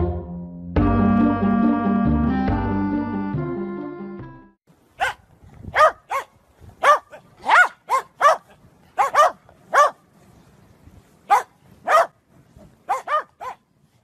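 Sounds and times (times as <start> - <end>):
dog barking: 5.0 - 10.0, 11.3 - 12.2, 12.9 - 13.6.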